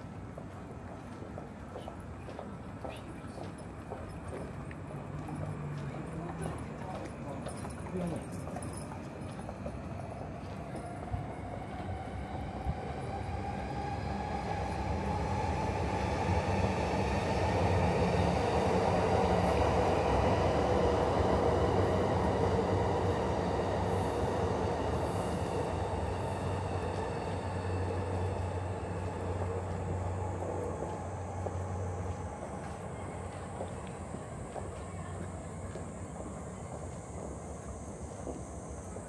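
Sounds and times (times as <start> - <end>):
train wheels rumbling on rails: 0.0 - 39.0.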